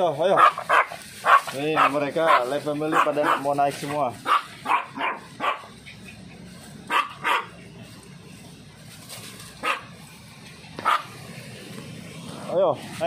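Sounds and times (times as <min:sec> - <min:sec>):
small dogs barking: 0:00.2 - 0:07.7, 0:09.6 - 0:10.0, 0:10.8 - 0:11.2.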